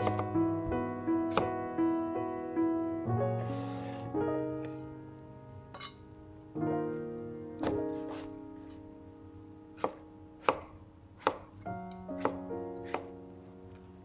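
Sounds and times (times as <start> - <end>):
knife chopping on cutting board: 0.0 - 0.3, 9.8 - 11.5, 12.2 - 13.1
soft piano music: 0.0 - 14.0.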